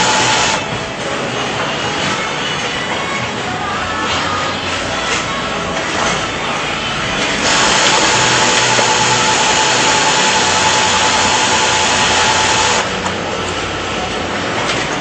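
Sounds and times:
sewing machine running: 0.0 - 0.7, 7.2 - 13.1.

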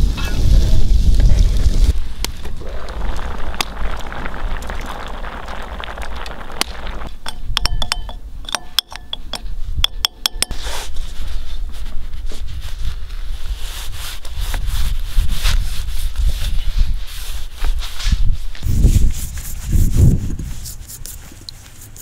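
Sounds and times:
metal spoon clinking ceramic bowl: 7.3 - 10.6.

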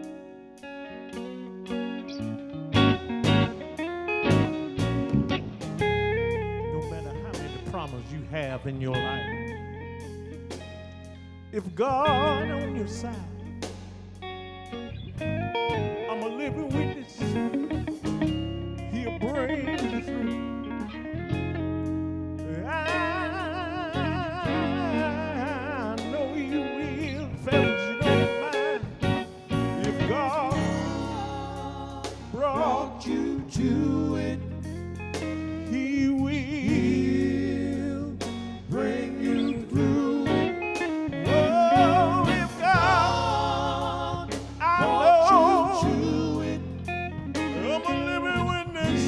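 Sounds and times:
electric guitar: 0.0 - 49.0
band accompaniment: 2.8 - 11.0, 12.0 - 14.2, 27.5 - 34.0, 38.2 - 49.0
man singing with vibrato: 11.6 - 13.4, 16.0 - 17.6, 18.9 - 20.4, 22.4 - 29.0, 29.7 - 34.7, 35.6 - 49.0.

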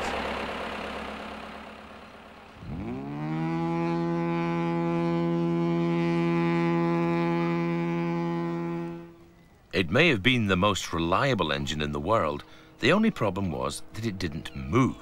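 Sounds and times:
ship air horn blast: 2.6 - 9.3, 12.1 - 13.0.

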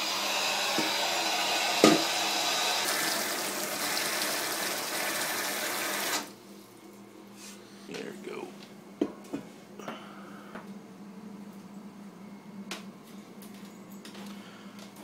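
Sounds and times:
tap water running into bowl: 0.7 - 2.2, 2.8 - 6.3.

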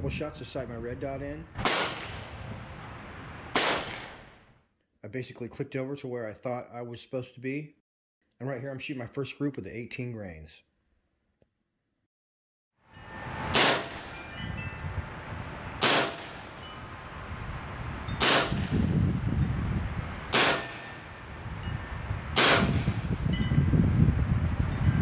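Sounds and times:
air pistol shots: 1.6 - 2.3, 3.6 - 4.2, 13.5 - 14.0, 15.8 - 16.4, 18.2 - 18.7, 20.3 - 21.0, 22.4 - 23.0
wind chimes ringing: 12.8 - 15.8, 16.4 - 18.2, 19.4 - 20.3, 20.9 - 22.1, 23.3 - 25.0.

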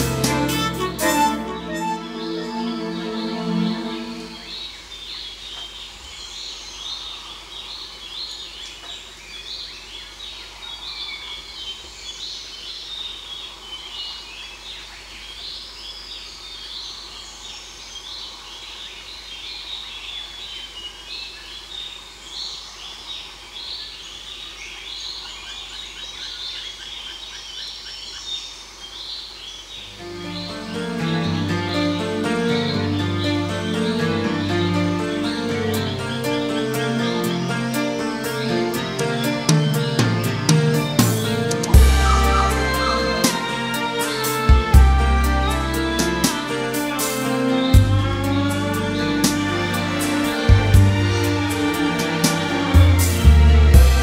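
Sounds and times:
birds chirping and whistling: 0.0 - 7.1, 24.8 - 53.3.

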